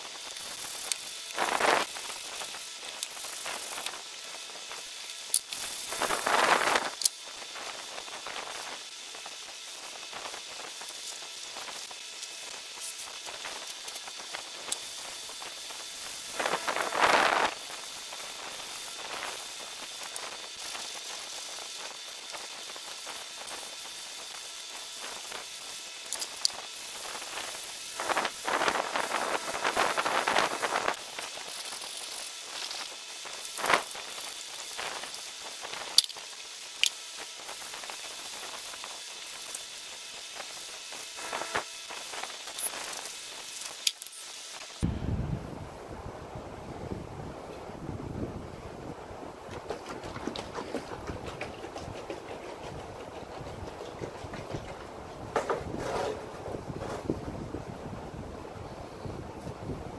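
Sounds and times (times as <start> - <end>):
steady low hiss: 0.0 - 59.9
hand sanding wood: 49.6 - 57.1.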